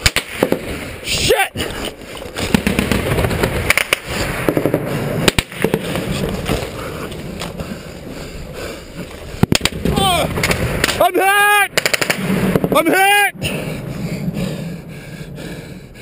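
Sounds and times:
gunfire cracking: 0.0s - 0.8s, 2.4s - 6.2s, 9.4s - 11.1s, 11.7s - 12.8s.

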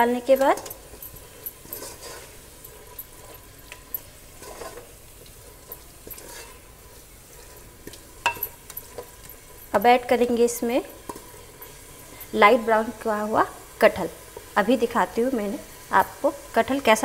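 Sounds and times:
faint sizzle: 0.0s - 17.0s
spatula scraping a pot: 0.3s - 9.8s, 10.8s - 12.4s.

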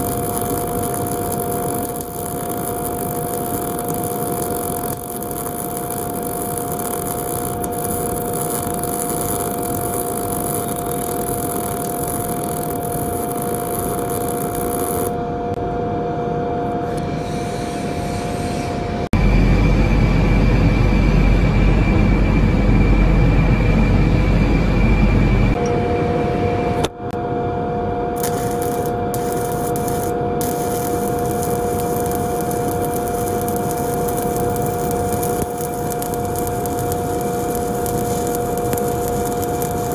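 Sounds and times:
arc welding hiss and crackle: 0.0s - 15.2s, 28.2s - 39.9s
deep low rumble: 19.2s - 25.6s.

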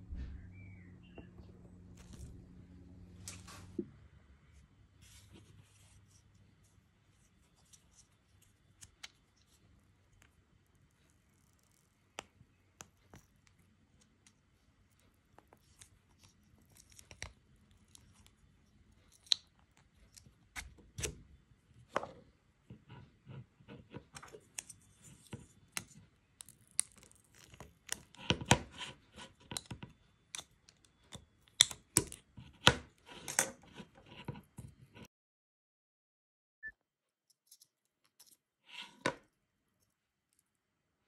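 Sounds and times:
plastic parts clicking and scraping: 21.9s - 35.1s.

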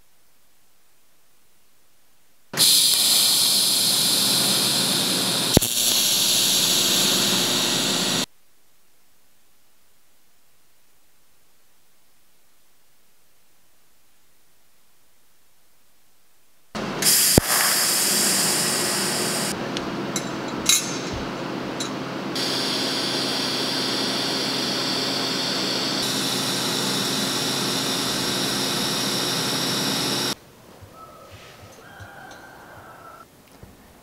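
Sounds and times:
welding arc hissing and buzzing: 2.5s - 8.3s, 16.8s - 30.4s.

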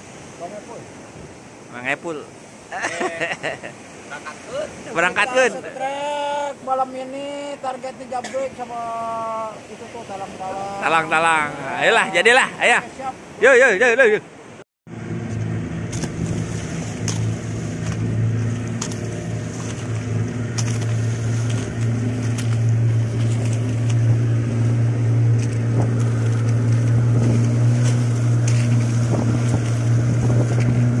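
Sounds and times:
water splashing along hull: 0.0s - 31.0s
boat motor running: 14.9s - 31.0s.

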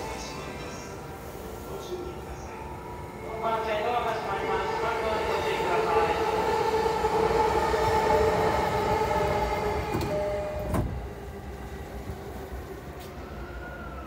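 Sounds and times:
train doors shutting with a thud: 7.4s - 13.2s.

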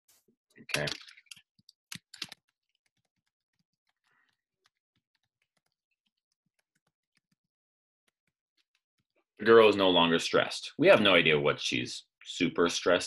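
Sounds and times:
computer keyboard typing: 0.8s - 7.4s.

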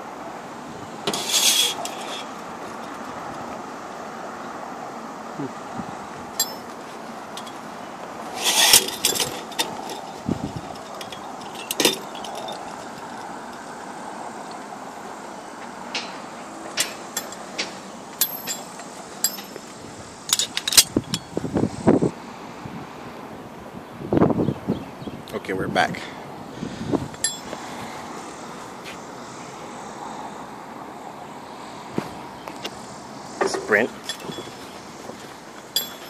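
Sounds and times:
outdoor background noise: 0.0s - 36.0s
light clicks and clinks: 6.4s - 7.6s, 8.6s - 13.7s, 15.9s - 19.7s, 20.3s - 21.3s, 27.2s - 27.6s, 33.4s - 36.0s.

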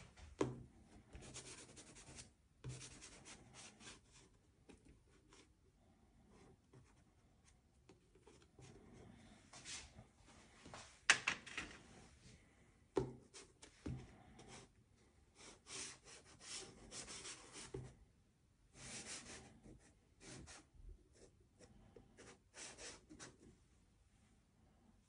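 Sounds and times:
pastel scratching on paper: 1.2s - 4.2s, 15.4s - 17.8s, 18.8s - 21.3s, 22.2s - 23.4s.

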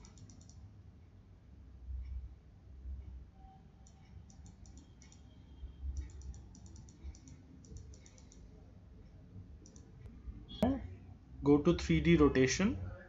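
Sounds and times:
keyboard and mouse clicking: 0.0s - 0.6s, 3.8s - 5.3s, 6.0s - 8.5s, 9.6s - 9.9s.

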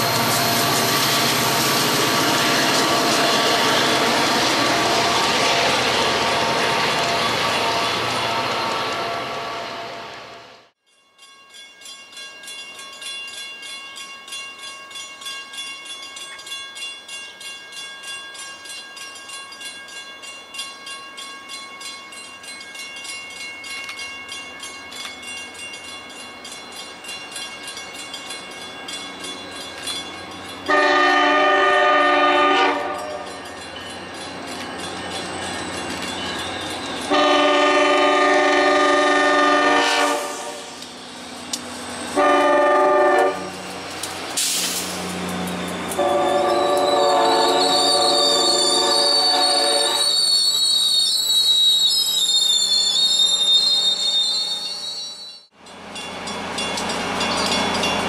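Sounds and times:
diesel train approaching: 0.0s - 10.8s, 12.2s - 58.0s
train air horn blasts: 30.7s - 33.2s, 37.1s - 40.8s, 42.2s - 43.5s, 46.0s - 50.2s.

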